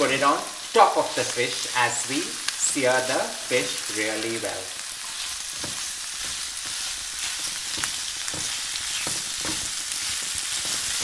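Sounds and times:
vegetables sizzling in oil: 0.0 - 11.0
spatula scraping pan: 5.0 - 11.0.

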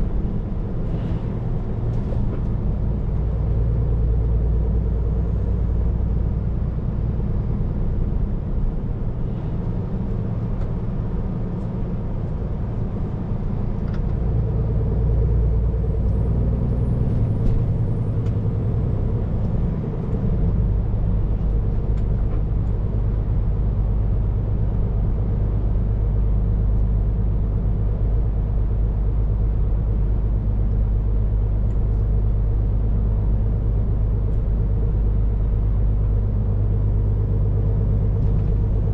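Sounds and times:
road noise: 0.0 - 38.9
truck diesel engine drone: 0.0 - 38.9.

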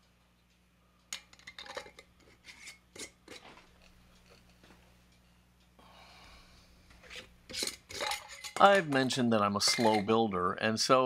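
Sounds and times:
metal lid clinking on glass jar: 7.1 - 10.1.

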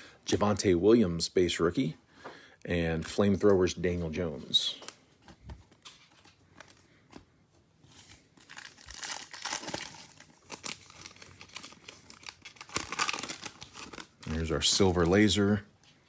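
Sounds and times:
foil wrapper crinkling: 7.9 - 15.6.

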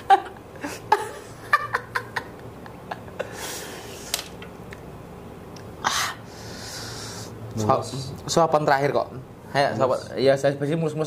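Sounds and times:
man laughing: 0.0 - 3.6.

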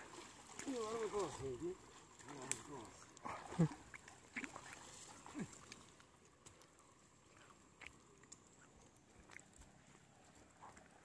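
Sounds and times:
faint ticks: 5.7 - 10.9.

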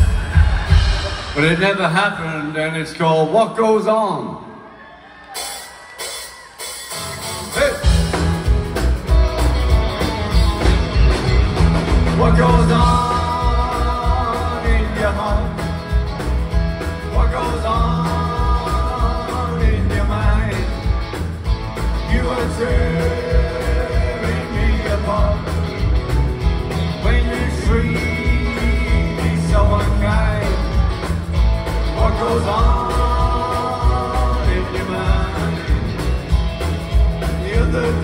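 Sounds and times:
live rock band playing: 0.0 - 2.7, 5.3 - 38.0
lead vocal singing: 11.9 - 38.0.

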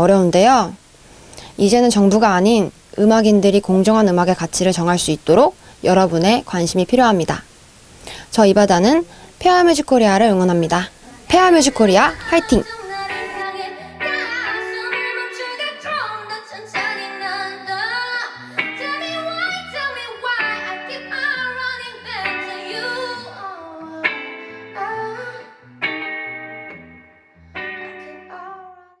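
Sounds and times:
woman singing: 11.1 - 25.7, 27.7 - 29.0
electric guitar: 12.0 - 29.0.

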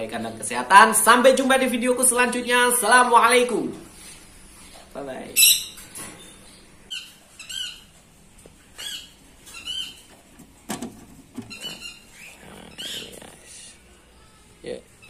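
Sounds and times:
parrots chirping and squawking: 5.2 - 10.3, 11.4 - 13.8.

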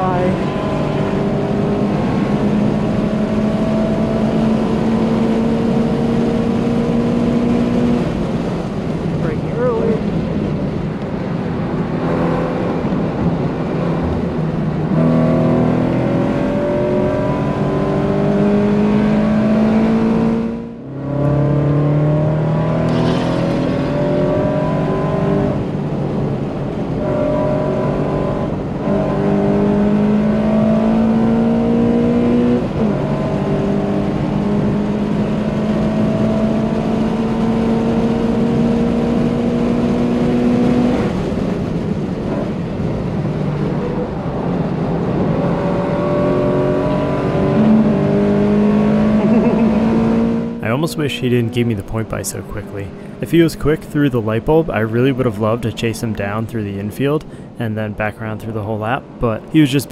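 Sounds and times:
car engine at full throttle: 0.0 - 59.9.

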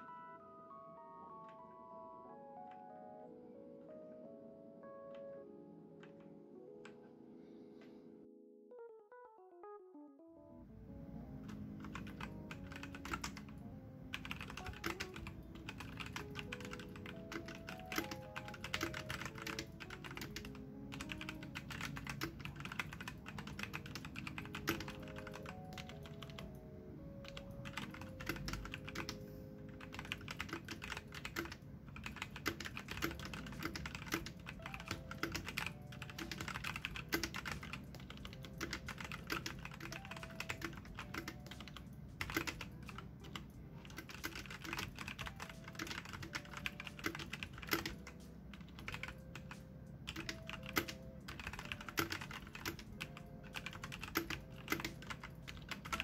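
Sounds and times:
soft background music: 0.0 - 56.0
mechanical keyboard typing: 11.4 - 26.6, 27.2 - 56.0.

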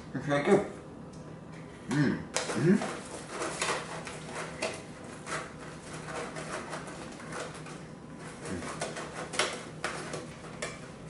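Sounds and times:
foil pan and plastic lid crinkling: 2.4 - 10.9.

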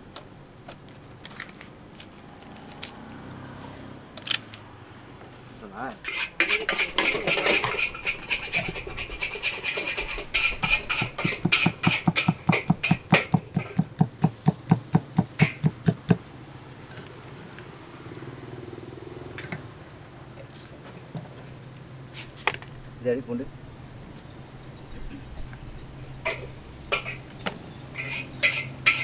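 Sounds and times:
kitchen utensil striking rapidly: 6.4 - 13.9, 15.4 - 16.0.

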